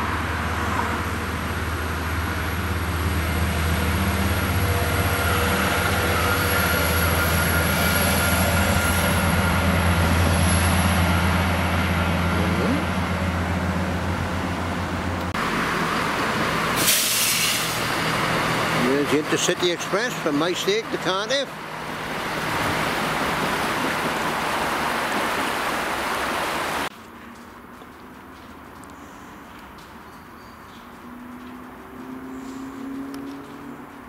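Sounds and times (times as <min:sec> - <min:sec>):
diesel train passing: 0:00.0 - 0:26.9.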